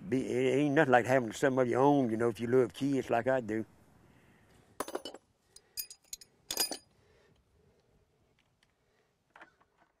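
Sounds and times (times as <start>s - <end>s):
metallic clinks of wrench and tools: 4.8s - 6.9s.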